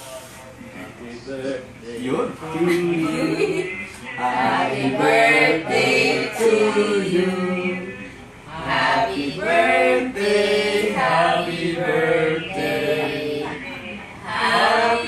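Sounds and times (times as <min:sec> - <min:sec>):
group singing unaccompanied: 0:04.2 - 0:15.0.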